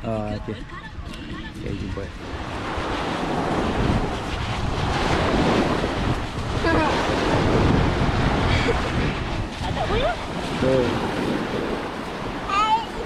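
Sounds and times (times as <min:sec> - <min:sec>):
wind buffeting microphone: 0:00.0 - 0:13.0
small waves washing on sand: 0:00.6 - 0:13.0.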